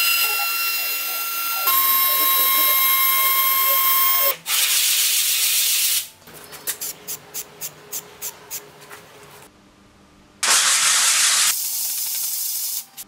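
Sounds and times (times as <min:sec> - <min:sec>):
spray can hissing: 0:10.4 - 0:13.0
spray can ball rattling: 0:11.5 - 0:12.9.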